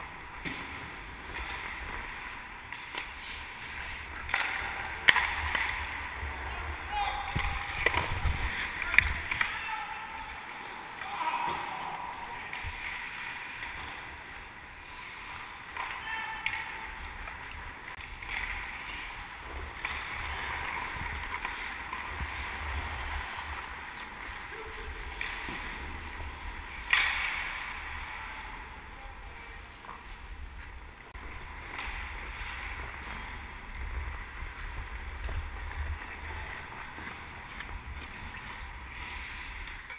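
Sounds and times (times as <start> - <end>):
ice skate blades scraping: 0.2 - 9.6, 10.2 - 16.0, 16.8 - 28.2
sharp crack: 4.1 - 6.4, 7.0 - 14.1, 26.7 - 28.2
wind rush on microphone: 7.2 - 9.3.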